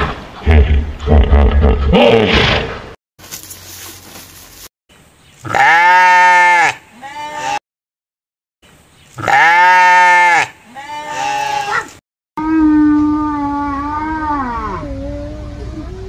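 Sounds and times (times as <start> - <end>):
goat bleating: 5.5 - 7.6, 9.2 - 11.9.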